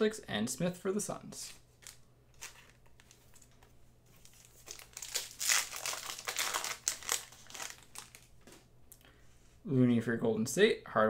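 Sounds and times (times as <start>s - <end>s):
foil wrapper crinkling: 1.8s - 8.6s.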